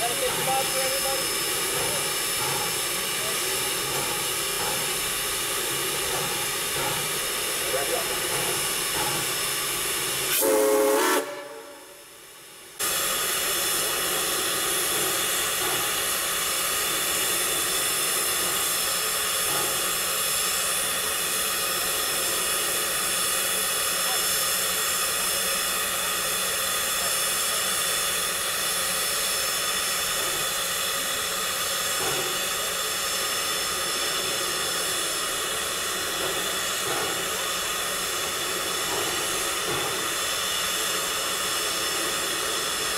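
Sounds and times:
steam locomotive hissing: 0:00.0 - 0:42.9
loud pitched whistle blast: 0:10.3 - 0:12.0.

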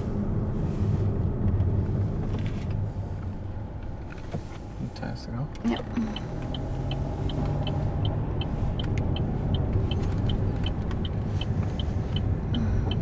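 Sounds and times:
car engine and road rumble: 0:00.0 - 0:13.0
turn signal ticking: 0:02.7 - 0:13.0.

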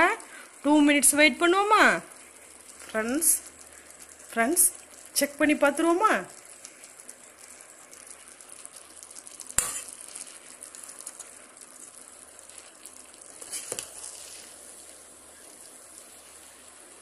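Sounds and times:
rice sizzling in pot: 0:00.0 - 0:17.0
metal ladle stirring rice: 0:12.5 - 0:14.5.

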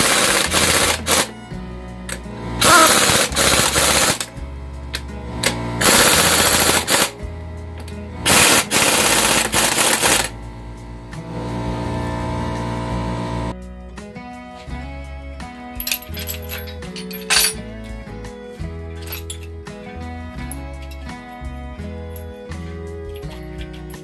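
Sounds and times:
pneumatic impact wrench hammering: 0:00.0 - 0:01.3, 0:02.0 - 0:07.2, 0:07.8 - 0:10.4.

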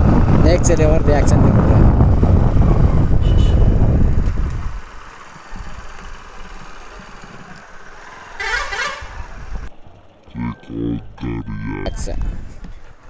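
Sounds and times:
wind on microphone: 0:00.0 - 0:04.9
motorcycle engine rumble: 0:00.0 - 0:13.0.

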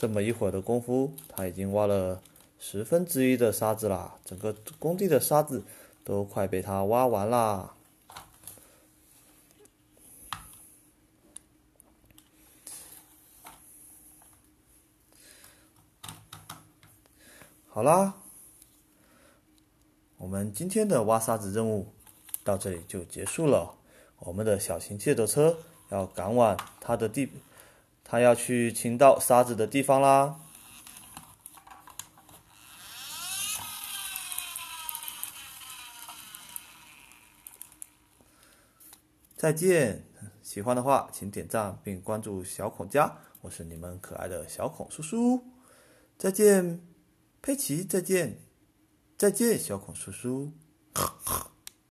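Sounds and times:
plastic toy clicks: 0:30.6 - 0:38.0.

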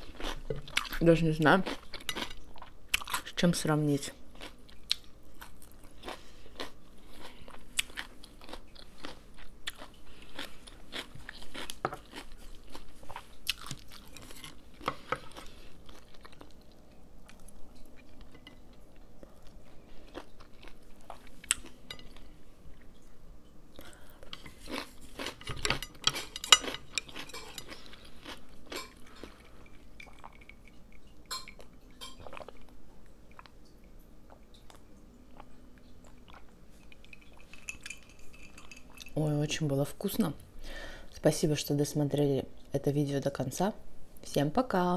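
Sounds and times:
person chewing with crunches: 0:00.0 - 0:03.3, 0:04.2 - 0:23.1, 0:23.8 - 0:39.2.

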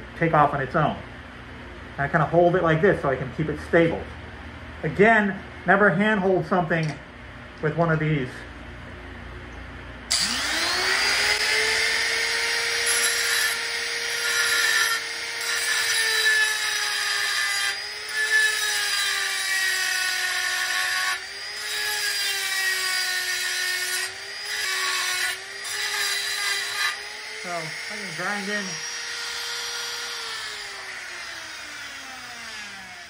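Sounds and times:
die grinder grinding steel: 0:10.1 - 0:33.0.

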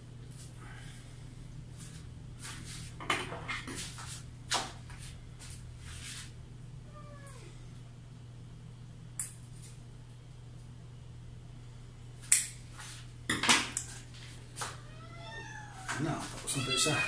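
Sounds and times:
low steady hum: 0:00.0 - 0:17.0
cat meowing: 0:06.9 - 0:07.5, 0:14.8 - 0:17.0.

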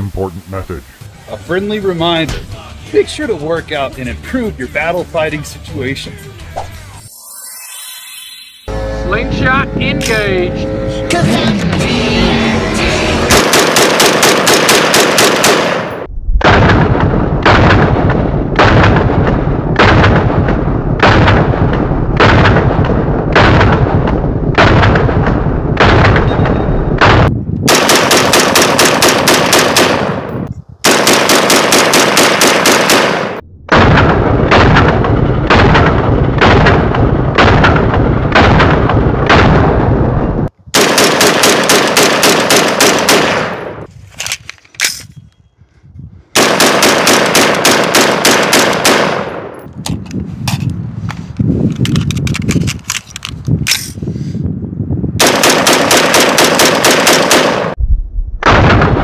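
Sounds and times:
rifle gunshots: 0:13.3 - 0:26.3, 0:27.0 - 0:39.9, 0:40.8 - 0:43.9, 0:46.4 - 0:49.6, 0:55.2 - 0:57.8.

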